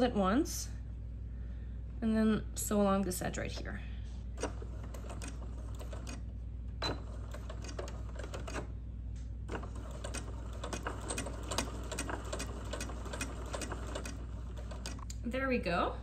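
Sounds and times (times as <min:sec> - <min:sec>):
sewing machine motor hum: 0:04.3 - 0:08.8, 0:09.5 - 0:15.1.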